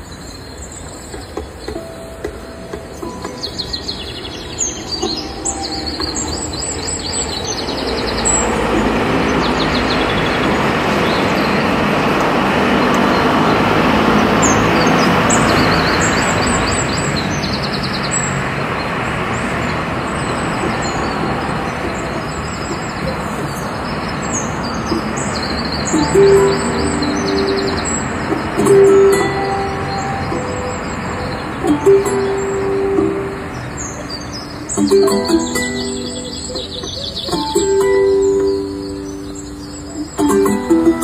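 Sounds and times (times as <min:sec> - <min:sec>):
birds chirping: 0:00.0 - 0:41.0
passing vehicle rumble: 0:00.0 - 0:41.0
sharp taps: 0:01.1 - 0:04.2, 0:24.9 - 0:30.8.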